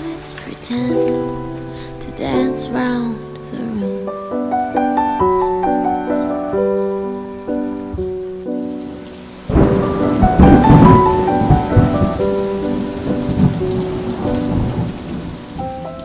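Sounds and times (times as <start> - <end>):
heavy rain: 0.0 - 16.0
slow piano music: 0.0 - 16.0
thunder crash: 9.5 - 16.0.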